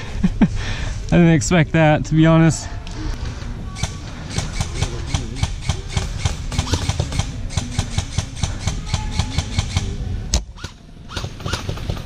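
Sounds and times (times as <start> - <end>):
airsoft guns firing: 3.8 - 10.0, 10.6 - 12.0.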